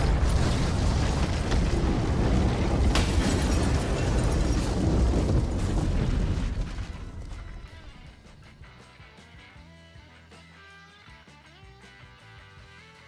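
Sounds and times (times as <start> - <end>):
rumbling explosion blast: 0.0 - 8.2.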